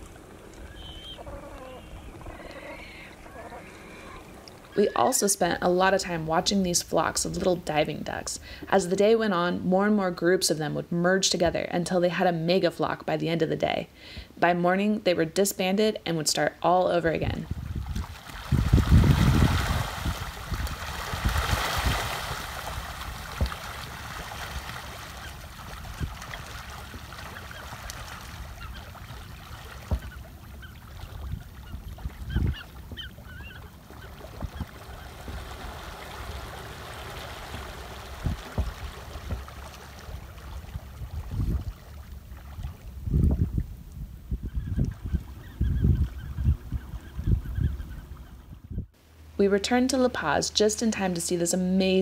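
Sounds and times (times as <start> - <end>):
rushing water: 0.0 - 5.4, 17.7 - 43.0
wind buffeting microphone: 0.0 - 6.5, 17.2 - 23.6, 31.1 - 33.2, 34.2 - 41.9, 42.5 - 49.0
faint bird calls: 0.2 - 5.1, 27.2 - 35.2.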